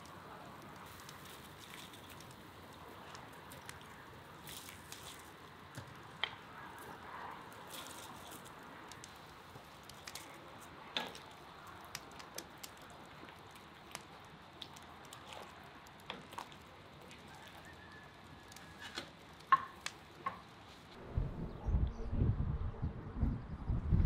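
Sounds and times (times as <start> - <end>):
small pops and crackles: 0.0 - 20.9
broth simmering with hiss: 0.0 - 21.0.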